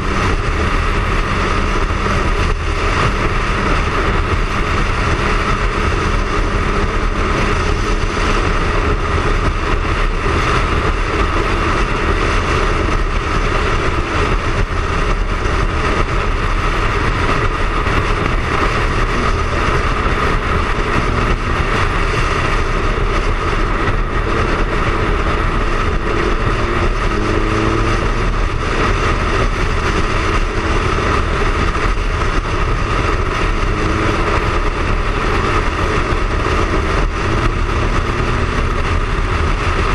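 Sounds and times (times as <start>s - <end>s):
motorcycle engine cruising: 0.0s - 39.9s
wind and road noise: 0.0s - 39.9s.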